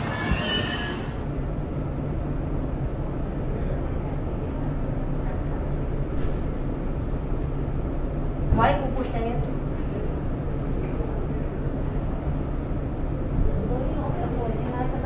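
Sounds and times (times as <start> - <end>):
thin wheel squeal: 0.0 - 1.2
electric train rumbling: 0.0 - 15.0.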